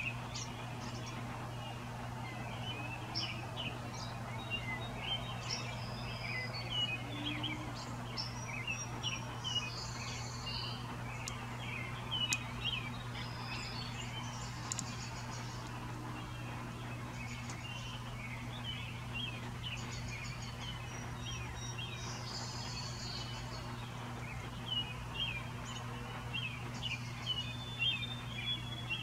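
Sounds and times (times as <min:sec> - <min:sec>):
birds chirping: 0:00.0 - 0:29.0
steady low hum: 0:00.0 - 0:29.0
sharp clicks: 0:11.2 - 0:11.5, 0:12.2 - 0:12.5, 0:14.5 - 0:15.8, 0:17.4 - 0:17.6.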